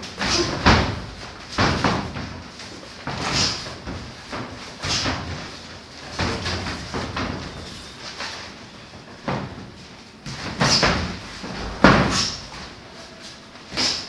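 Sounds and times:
feet moving on ring canvas: 0:00.0 - 0:14.0.

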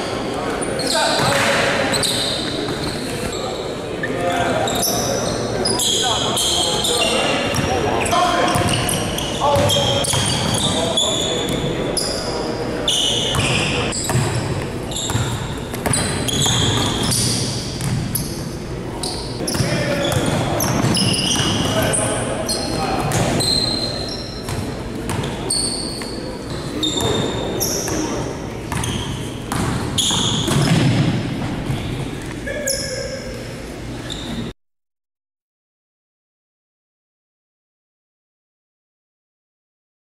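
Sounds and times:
sneakers squeaking: 0:00.0 - 0:34.5
basketball bouncing: 0:07.5 - 0:07.7, 0:08.5 - 0:08.8, 0:09.5 - 0:10.6, 0:13.3 - 0:18.2, 0:19.4 - 0:21.9, 0:23.0 - 0:23.4, 0:24.4 - 0:25.4, 0:28.7 - 0:32.2.

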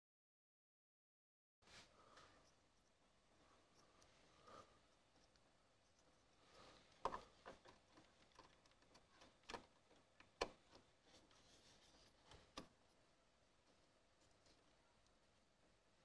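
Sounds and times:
small parts clicking and tapping: 0:05.1 - 0:11.4.

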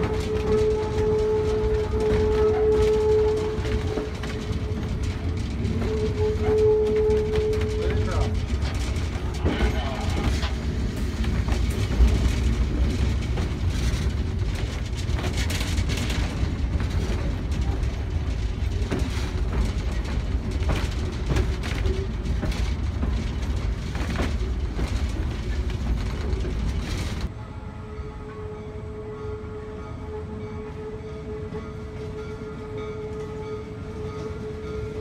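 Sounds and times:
clicks and clunks of steel wheels: 0:00.0 - 0:27.3
train rumbling over track: 0:00.0 - 0:35.0.

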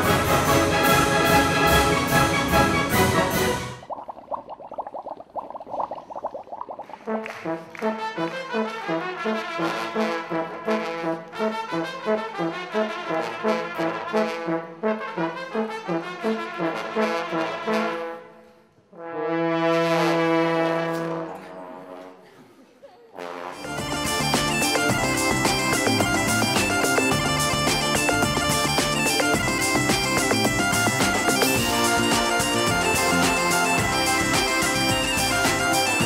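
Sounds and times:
brass trio playing a bouncy tune: 0:07.1 - 0:18.2, 0:19.0 - 0:21.4, 0:23.2 - 0:36.0
steady repeating beat: 0:23.7 - 0:36.0.

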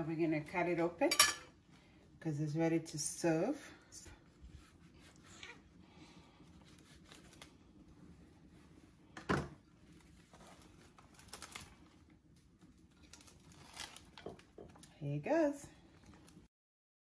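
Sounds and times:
leaf parcel crinkling: 0:09.8 - 0:14.9.

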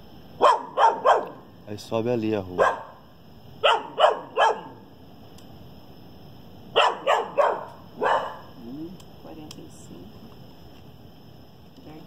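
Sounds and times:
dog barking: 0:00.4 - 0:01.5, 0:02.5 - 0:03.0, 0:03.6 - 0:04.8, 0:06.7 - 0:08.6.

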